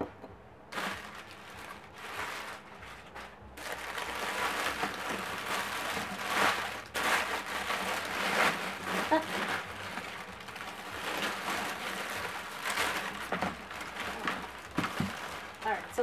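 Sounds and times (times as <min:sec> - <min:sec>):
packing paper rustling: 0:00.7 - 0:16.0.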